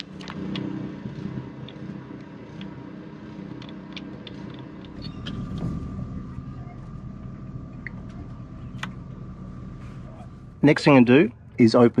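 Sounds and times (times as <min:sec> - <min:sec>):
hands clicking and tapping on engine: 0:00.0 - 0:05.7
small engine humming: 0:00.0 - 0:12.0.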